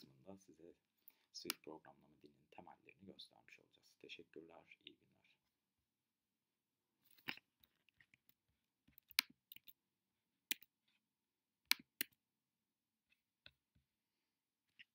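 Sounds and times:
keyboard and mouse clicks: 8.9s - 9.8s, 10.5s - 10.7s, 11.7s - 12.2s.

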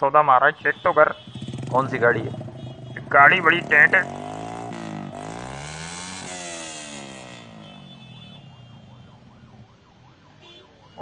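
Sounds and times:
motorcycle engine revving: 1.1s - 9.5s.

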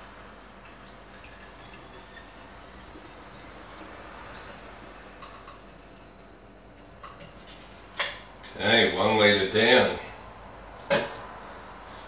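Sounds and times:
liquid trickling through funnel: 0.0s - 7.8s.

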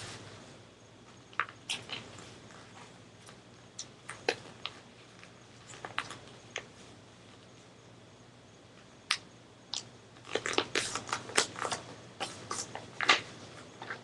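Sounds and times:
paper being folded and creased: 10.3s - 13.2s.

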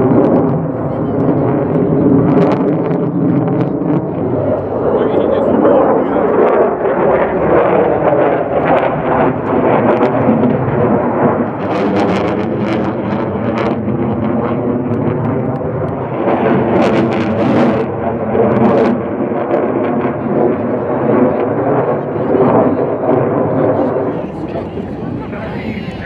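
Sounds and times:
fighter jet engine rumbling: 0.0s - 26.0s.

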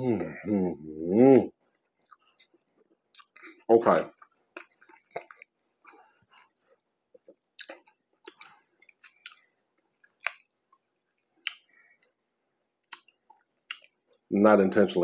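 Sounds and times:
person chewing food: 1.6s - 14.3s.

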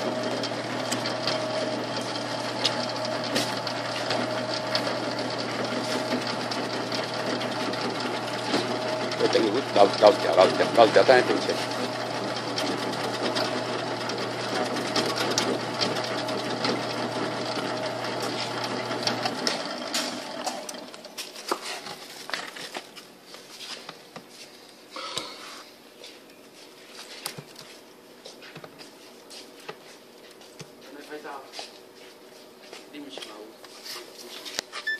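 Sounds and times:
vegetable slicer motor humming: 0.0s - 21.3s.

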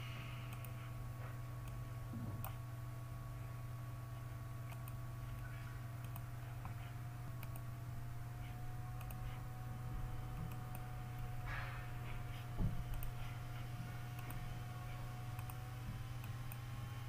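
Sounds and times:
low electrical hum: 0.0s - 17.0s
computer mouse clicks: 0.5s - 0.8s, 4.7s - 6.8s, 7.4s - 7.7s, 9.0s - 9.4s, 10.4s - 11.3s, 12.3s - 13.4s, 14.1s - 14.5s, 15.3s - 15.6s, 16.2s - 16.6s.

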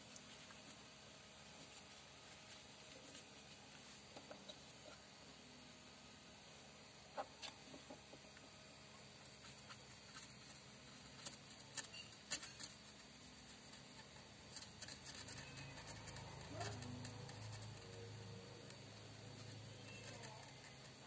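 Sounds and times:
scratching on glass panel: 9.3s - 21.0s.

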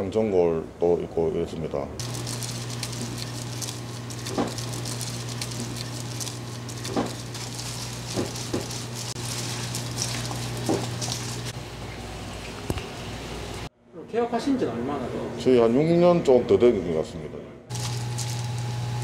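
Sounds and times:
steady low hum: 1.8s - 14.0s
wet crackling and squishing: 2.0s - 11.6s.

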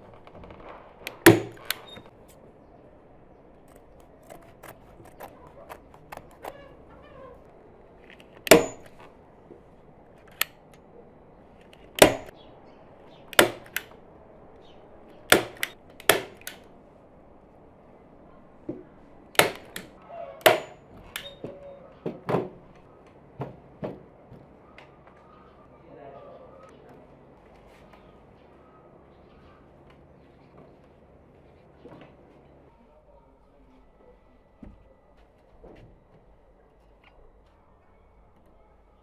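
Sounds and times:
staple gun snapping: 8.1s - 9.0s, 11.7s - 12.3s, 13.3s - 13.9s, 15.3s - 16.6s, 19.4s - 21.3s.

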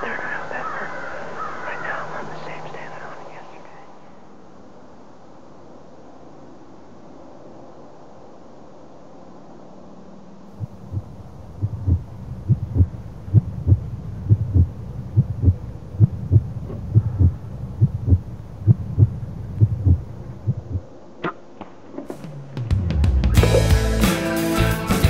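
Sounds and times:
heartbeat double thump: 10.6s - 20.9s.

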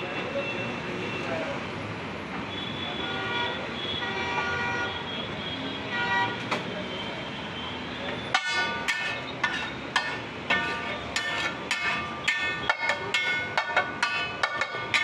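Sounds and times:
street noise: 0.0s - 15.0s
car horns tooting: 2.5s - 9.9s
spatula clanging on griddle: 8.3s - 15.0s.

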